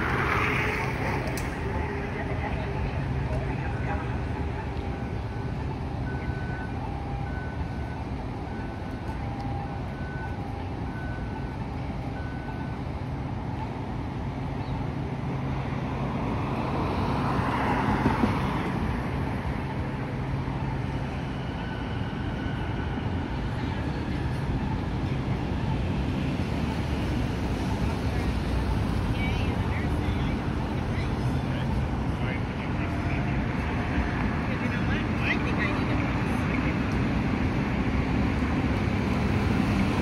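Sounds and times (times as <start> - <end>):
vehicle passing by: 0.0 - 4.3
low traffic hum: 0.0 - 40.0.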